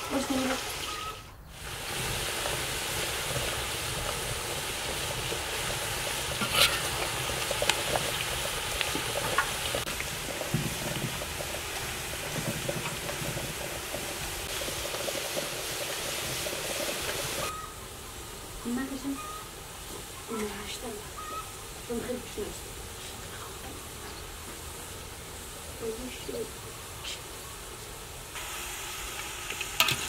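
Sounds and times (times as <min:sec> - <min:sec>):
fries sizzling in hot oil: 0:00.0 - 0:30.0
oil pops and crackles: 0:01.6 - 0:17.5, 0:28.4 - 0:30.0.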